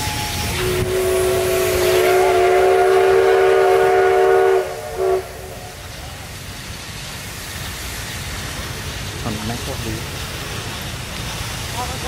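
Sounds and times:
railway yard rumble: 0.0 - 12.0
locomotive horn chime: 0.6 - 5.2.

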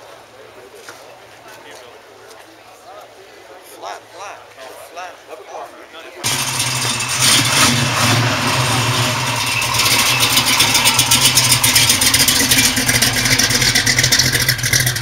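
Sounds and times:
loud engine running with pulsing: 6.2 - 15.0.

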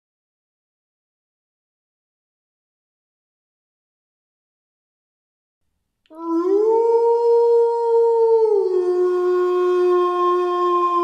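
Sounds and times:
wolf howling: 6.1 - 11.0.

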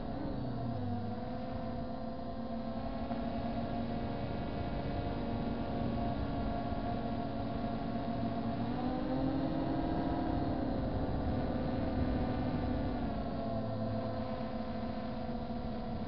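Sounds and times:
quadcopter propellers humming: 0.0 - 16.0
wind noise on microphone: 9.3 - 13.6.

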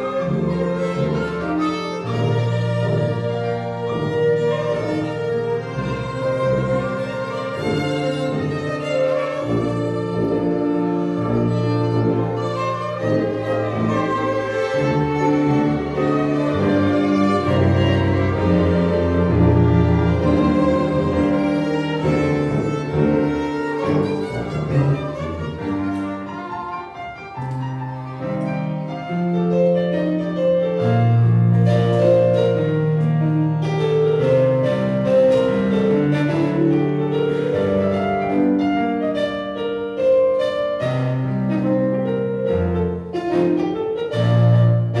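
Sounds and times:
violins playing melody: 0.0 - 45.0
tuba bass line: 0.1 - 25.8.

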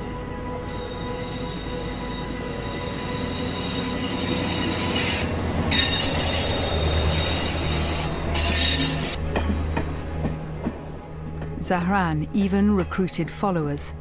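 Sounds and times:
train wheels squealing on rails: 0.6 - 10.3.

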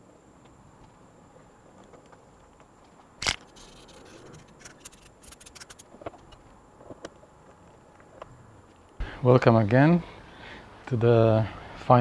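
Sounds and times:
tools and parts clicking and rattling: 2.8 - 7.0.

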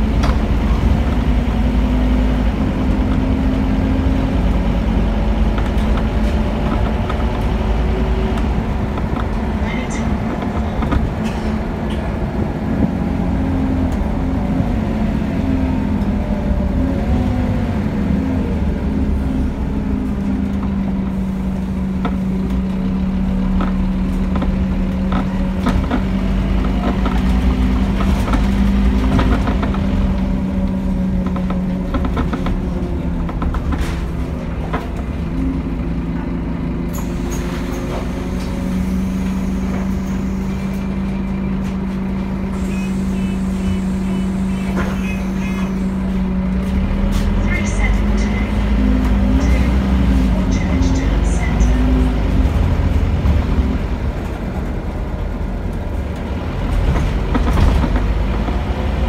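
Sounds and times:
bus diesel engine droning: 0.0 - 59.0.

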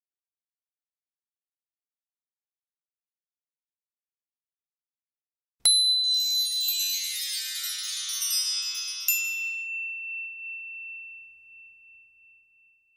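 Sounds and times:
shimmering chime strikes: 5.7 - 12.6.

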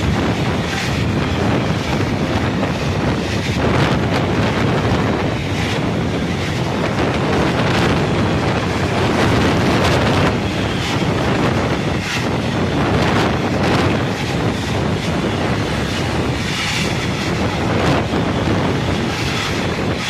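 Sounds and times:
freight train wheels rumbling: 0.0 - 20.0
wind buffeting microphone: 0.0 - 20.0.

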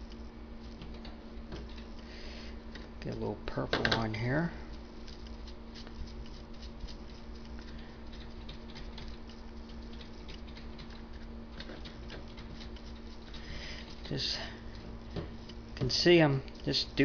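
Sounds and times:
steady low hum: 0.0 - 17.0
paintbrush dabbing on plastic wrap: 4.7 - 10.5.

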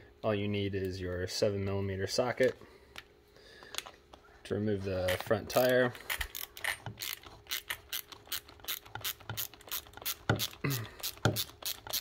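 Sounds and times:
ratchet wrench clicking: 5.1 - 12.0.

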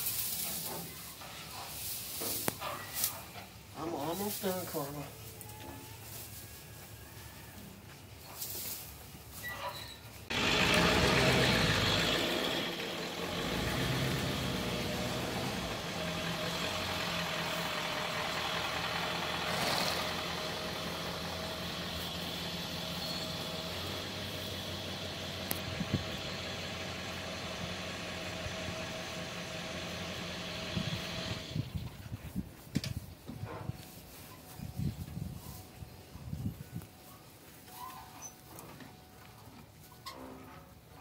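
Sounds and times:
truck engine idling: 10.3 - 31.9.

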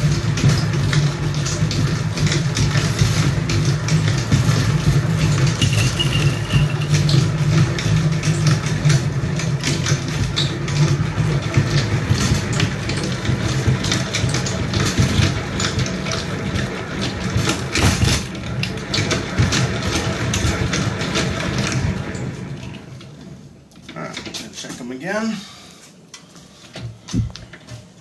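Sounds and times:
crank gearing clatter: 5.4 - 7.4.

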